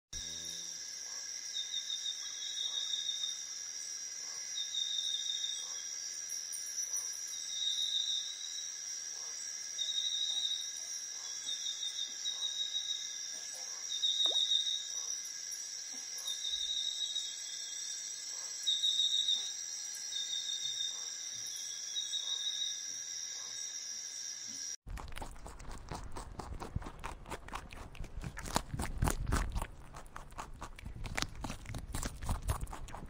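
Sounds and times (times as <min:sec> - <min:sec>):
insects droning high-pitched: 0:00.2 - 0:24.8
insect pulsing trill: 0:00.2 - 0:26.9.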